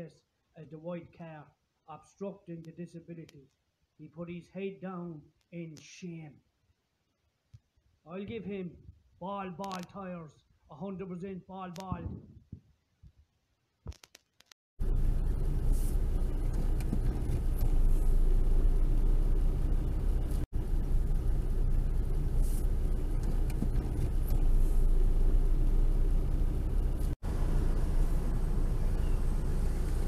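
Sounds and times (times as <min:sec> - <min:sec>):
car engine and tyres rumbling: 0:14.8 - 0:30.0.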